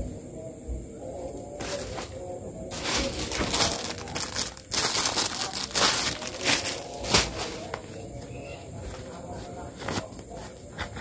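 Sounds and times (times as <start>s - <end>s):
packaging crinkling and rustling: 2.7s - 8.0s.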